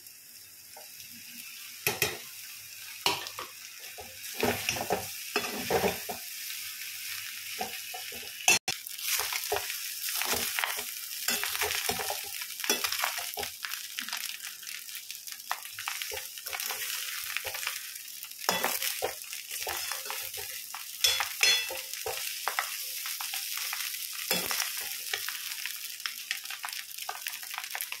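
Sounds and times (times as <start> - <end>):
rice sizzling in a metal pan: 0.0 - 28.0
metal spoon scraping a pan: 3.0 - 6.2, 7.6 - 13.5, 18.5 - 22.6, 24.3 - 25.3.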